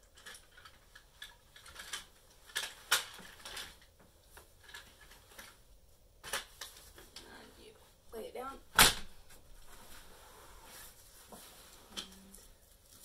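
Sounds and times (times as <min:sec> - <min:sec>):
playard frame clicking and clattering: 0:00.0 - 0:05.6.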